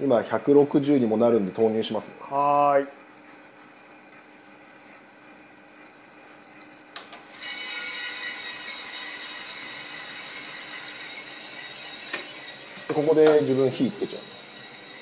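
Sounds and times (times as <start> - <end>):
coffee beans rattling in drum: 7.6 - 15.0
drum motor hum: 10.3 - 15.0.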